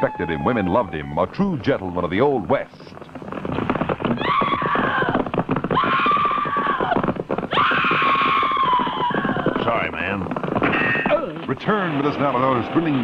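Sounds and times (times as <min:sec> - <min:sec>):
hoofbeats clattering: 0:00.0 - 0:13.0
horse whinnies: 0:04.1 - 0:09.9.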